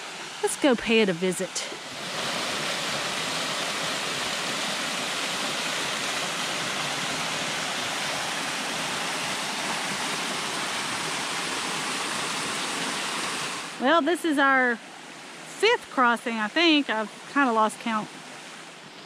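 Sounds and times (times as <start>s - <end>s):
waterfall splashing into pool: 1.8s - 13.8s.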